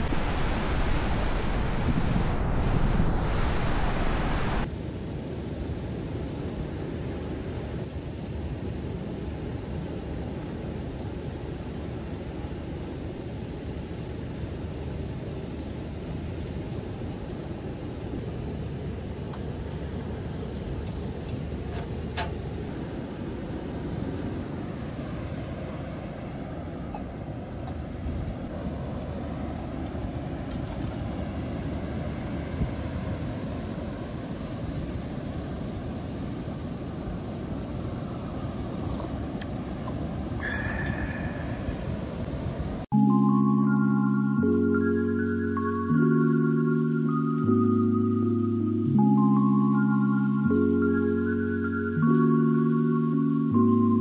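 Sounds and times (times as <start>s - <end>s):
surf washing: 0.0s - 42.9s
steady low rumble: 0.0s - 44.7s
organ-like background music: 42.9s - 54.0s.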